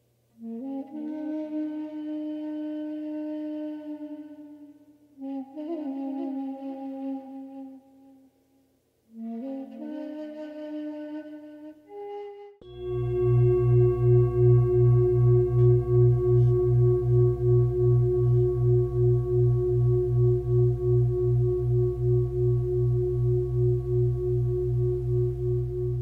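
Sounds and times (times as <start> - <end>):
singing bowl ringing: 12.6 - 26.0.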